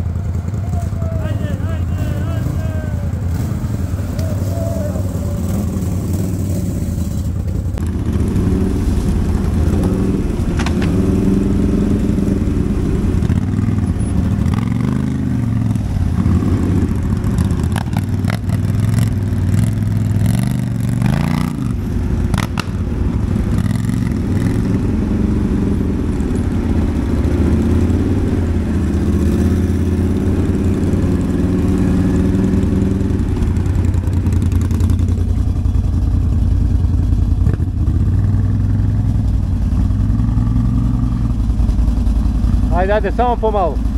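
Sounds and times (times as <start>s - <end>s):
quad engine revving: 0.6s - 35.9s, 37.3s - 41.6s
knocks and clatter: 10.4s - 11.1s.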